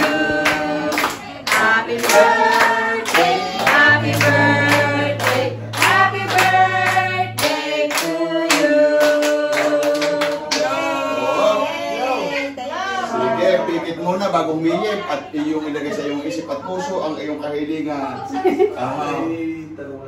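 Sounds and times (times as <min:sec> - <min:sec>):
hand clapping: 0:00.0 - 0:10.8
group singing: 0:00.0 - 0:13.6.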